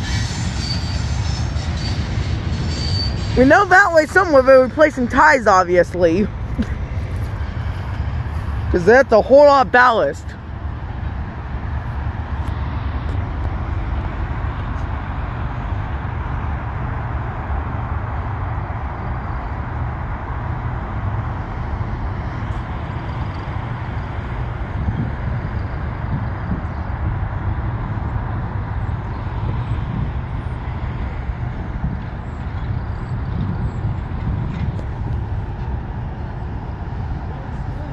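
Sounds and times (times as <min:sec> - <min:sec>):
road traffic rumble: 0:00.0 - 0:37.9.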